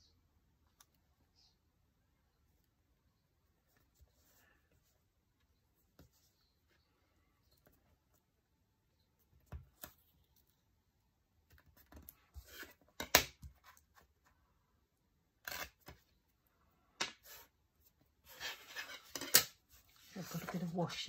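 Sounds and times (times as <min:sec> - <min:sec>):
paper rustling: 0:19.7 - 0:21.0.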